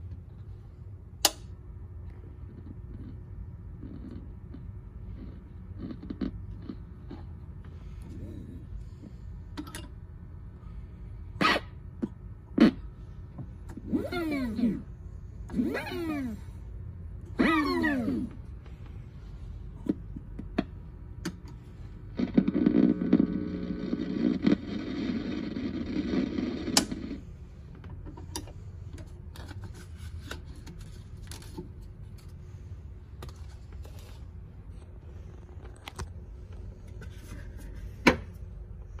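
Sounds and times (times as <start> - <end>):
record playing through speaker: 19.9 - 32.3.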